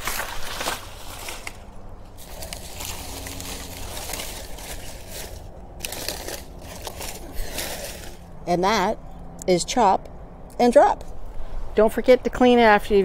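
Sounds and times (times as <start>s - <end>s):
dry leaves rustling and crackling: 0.0s - 8.4s.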